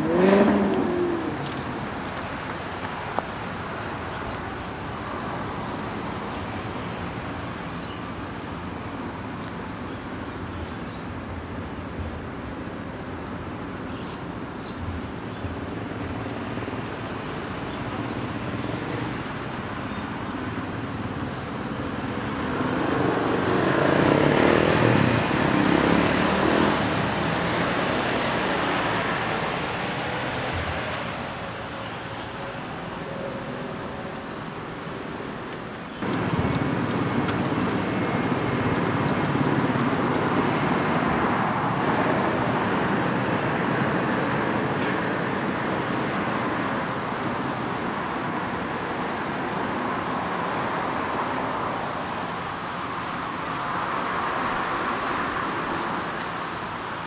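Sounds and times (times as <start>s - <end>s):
road traffic passing: 0.0s - 57.0s.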